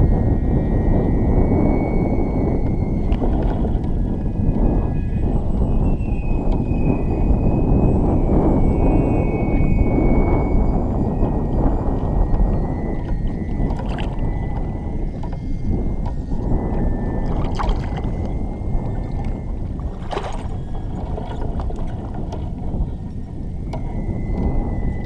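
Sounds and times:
low rumble: 0.0 - 25.0
water lapping against hull: 2.6 - 8.7, 10.4 - 25.0
hand splashing water: 19.9 - 21.9.

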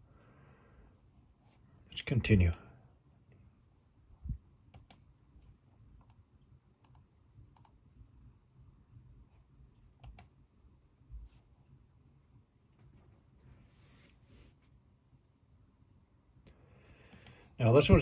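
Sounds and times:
computer mouse clicking: 4.7 - 5.1, 6.0 - 6.2, 6.8 - 7.8, 10.0 - 10.3, 17.1 - 17.4.

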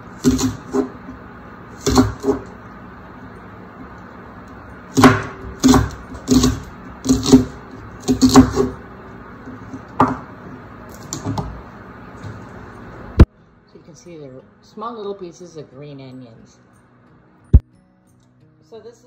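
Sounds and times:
knife chopping on wooden board: 0.2 - 1.0, 1.8 - 2.5, 4.9 - 8.8, 9.6 - 10.3.

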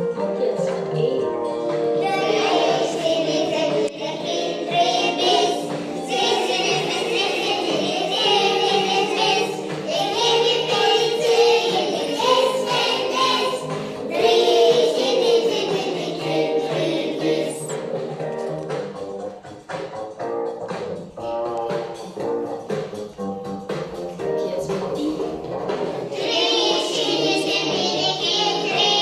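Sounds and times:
musical accompaniment: 0.0 - 29.0
children singing in unison: 1.9 - 18.1, 26.0 - 29.0.

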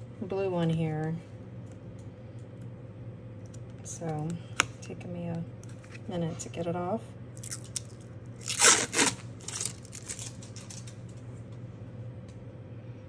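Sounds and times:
plastic film peeling off: 7.4 - 11.0.

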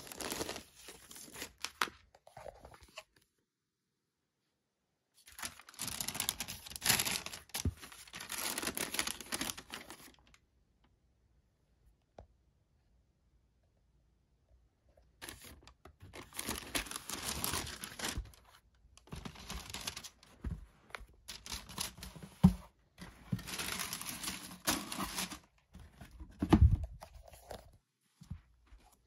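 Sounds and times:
tissue paper rustling: 0.0 - 1.7, 5.2 - 10.2, 15.2 - 26.1.

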